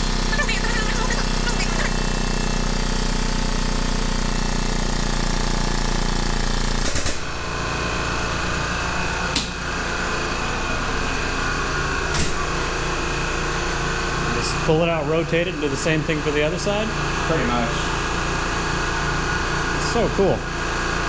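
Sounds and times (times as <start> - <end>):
air-driven pump chattering: 0.0 - 4.8
steady mechanical running: 0.0 - 21.0.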